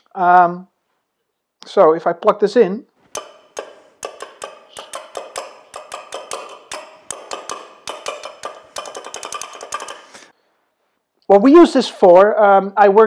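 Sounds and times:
sharp taps with short ringing: 0:03.1 - 0:10.3.

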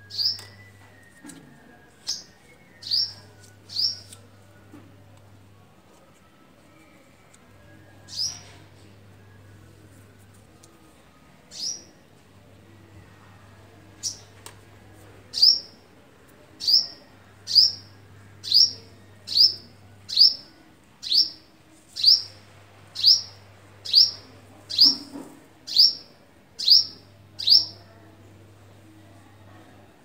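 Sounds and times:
small bird chirping: 0:23.0 - 0:25.1.

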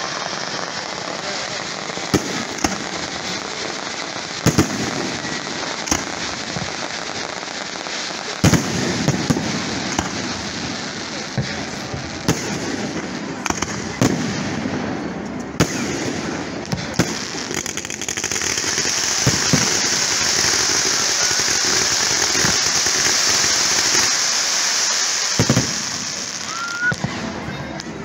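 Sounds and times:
firework shells bursting: 0:00.0 - 0:07.1, 0:08.0 - 0:14.5
fireworks hissing crackle: 0:00.0 - 0:28.0.

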